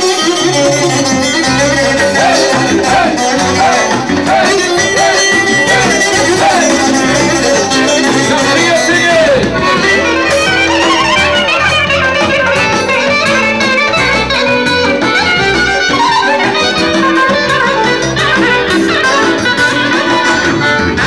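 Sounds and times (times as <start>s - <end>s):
dance music: 1.0s - 14.1s.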